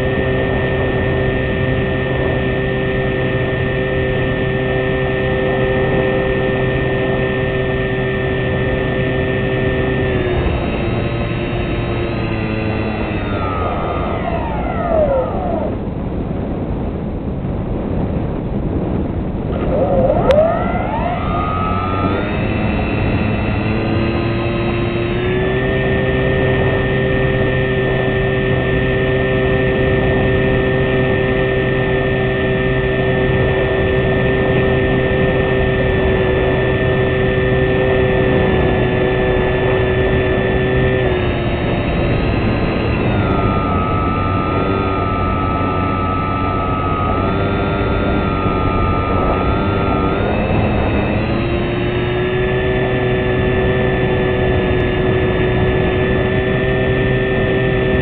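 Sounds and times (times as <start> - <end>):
model aircraft motor and propeller: 0.0 - 17.1, 18.7 - 58.0
wind rushing over microphone: 0.0 - 58.0.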